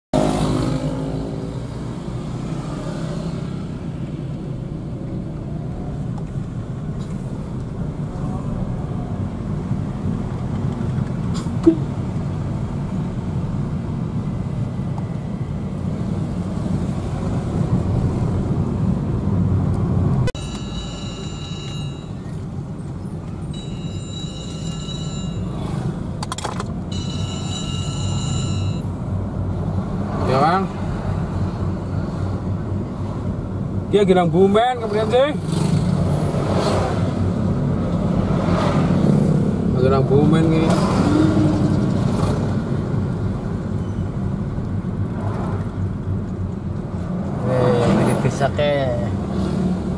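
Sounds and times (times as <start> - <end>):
car cabin engine and road rumble: 3.5 - 49.9
thin high whine: 20.4 - 22.4.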